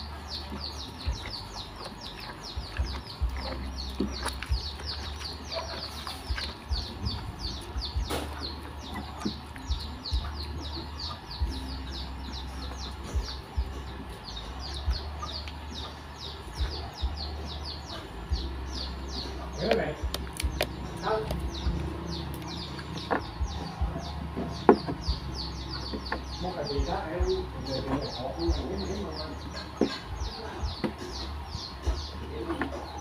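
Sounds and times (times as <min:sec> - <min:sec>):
low rumble: 0:00.0 - 0:27.6
birds chirping: 0:00.0 - 0:33.0.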